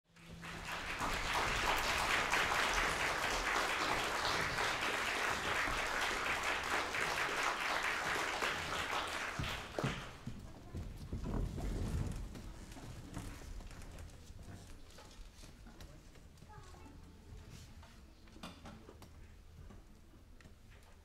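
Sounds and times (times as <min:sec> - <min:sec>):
audience applauding: 0:00.1 - 0:10.3.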